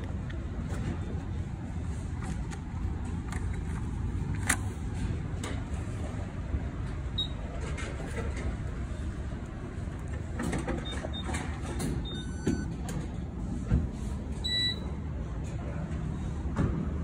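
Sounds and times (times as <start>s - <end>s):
short electronic beeps: 12.0s - 12.7s, 14.4s - 14.9s.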